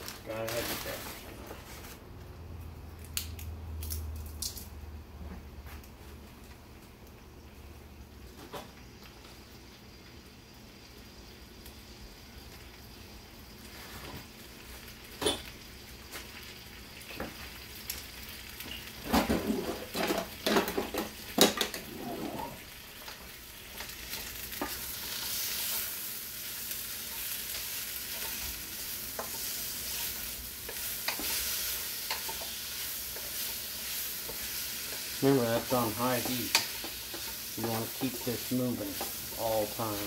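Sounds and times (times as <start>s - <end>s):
vegetables sizzling in oil: 7.4s - 40.0s
spatula scraping a wok: 27.1s - 38.4s.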